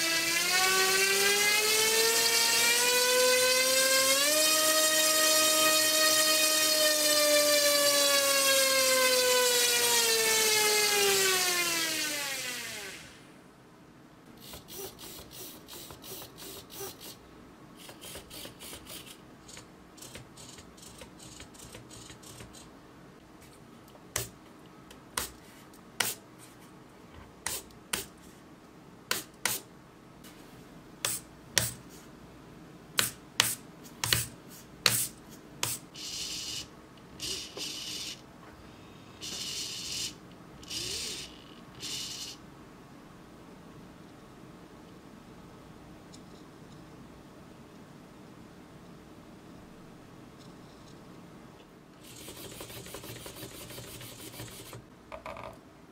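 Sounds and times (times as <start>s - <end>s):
small electric motor whine: 0.0s - 13.3s, 39.2s - 42.4s
servos buzzing: 39.2s - 42.4s.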